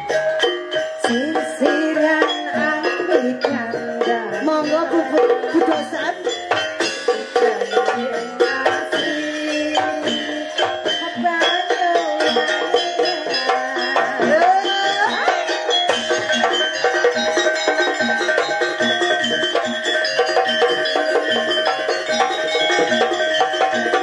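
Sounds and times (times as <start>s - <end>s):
band with hand drums: 0.0s - 24.0s
woman singing into microphone: 1.0s - 6.3s, 7.2s - 16.0s.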